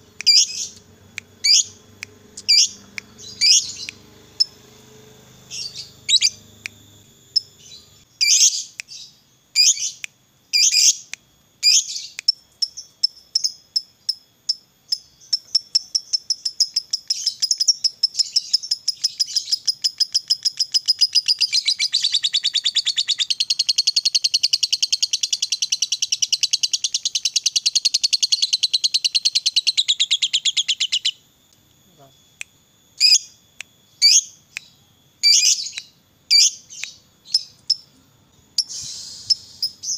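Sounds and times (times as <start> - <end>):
lovebird chirping and chattering: 0.2 - 4.6, 5.5 - 6.4, 7.3 - 11.0, 14.9 - 31.2, 34.0 - 37.9.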